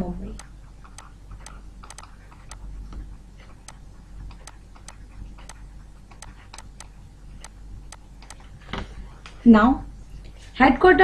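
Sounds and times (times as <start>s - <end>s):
low steady hum: 0.0s - 11.0s
stylus tapping on a tablet: 0.4s - 3.1s, 3.7s - 8.5s.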